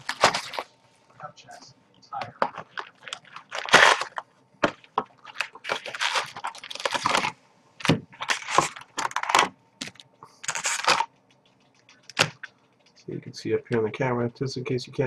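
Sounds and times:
foil packs crinkling: 0.0 - 0.7, 2.3 - 11.1.

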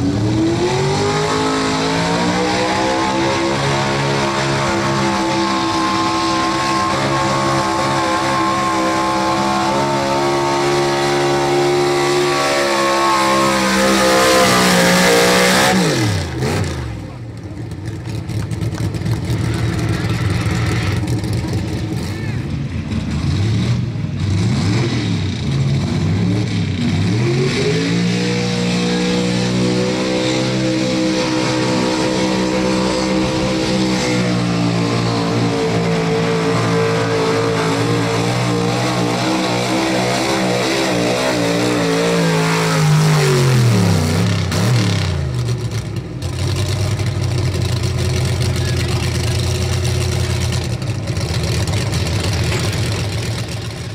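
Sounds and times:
truck engine revving: 0.0 - 53.9.

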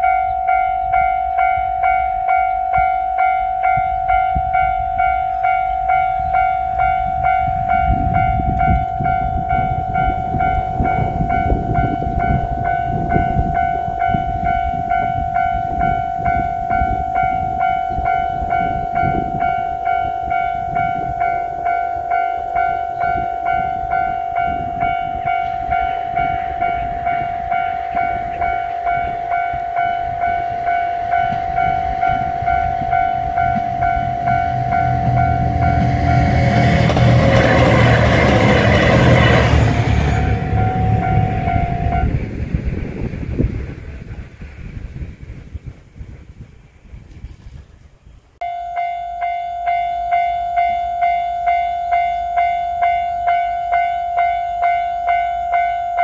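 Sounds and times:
level-crossing warning bell ringing: 0.0 - 42.3, 48.4 - 56.0
low rumbling noise: 3.5 - 47.2.

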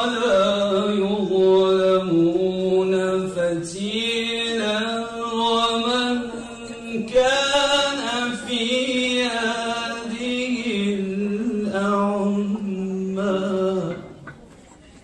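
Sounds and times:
person reciting melodically: 0.0 - 14.6.

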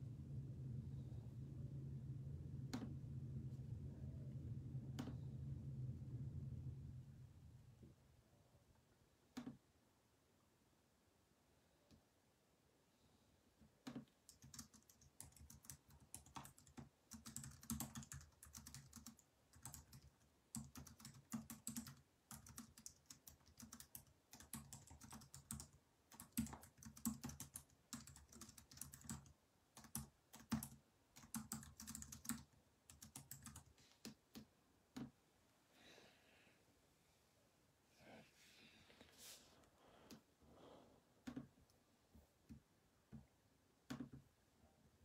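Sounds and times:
typing on keyboard: 13.8 - 35.1, 43.9 - 44.2.

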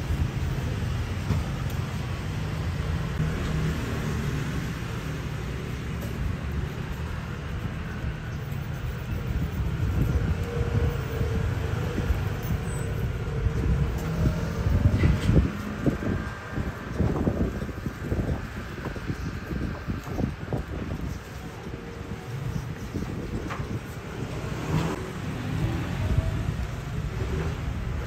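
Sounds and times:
low rumble of street traffic: 0.0 - 28.0.

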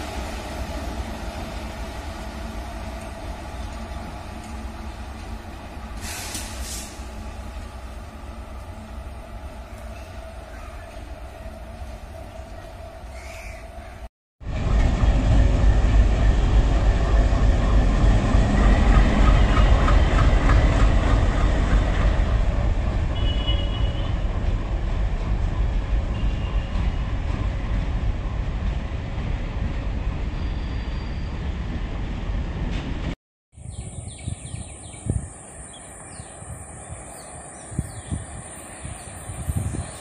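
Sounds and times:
diesel locomotive engine: 0.0 - 40.0.

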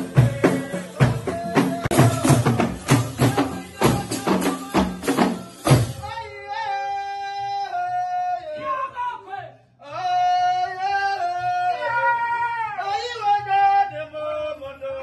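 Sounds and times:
drums beating fast rhythm: 0.0 - 6.3
lower singing voice: 0.0 - 9.2
group singing: 0.0 - 15.0.

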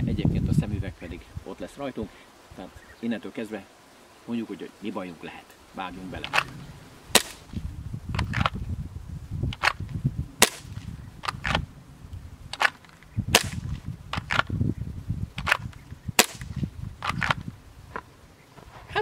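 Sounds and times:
wind rumble on microphone: 0.0 - 1.8, 5.8 - 19.0
airsoft pistol pops: 6.2 - 8.6, 9.5 - 11.6, 12.5 - 14.6, 15.4 - 18.0.

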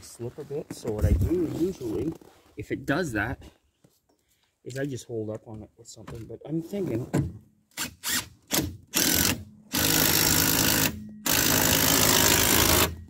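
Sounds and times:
impact wrench running: 7.9 - 13.0.

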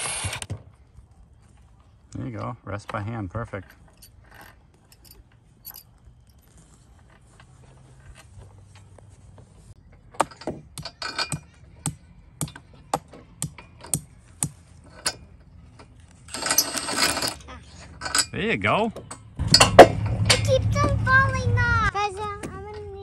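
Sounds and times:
hardware clattering: 2.2 - 6.4, 9.9 - 20.8
metallic clicks and clinks: 3.4 - 6.5, 10.2 - 11.6, 13.4 - 20.6.

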